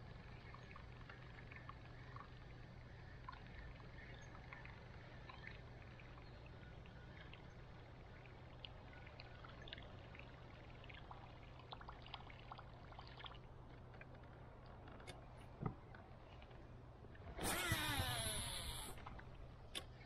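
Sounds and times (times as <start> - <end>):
water trickling: 0.0 - 20.0
fishing reel spool whirring: 17.3 - 19.4.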